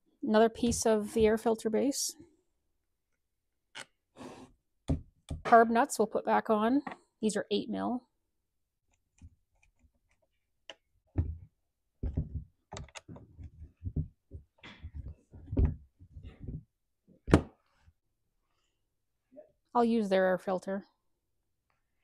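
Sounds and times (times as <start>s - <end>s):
nut driver clicking and scraping: 3.7s - 4.0s.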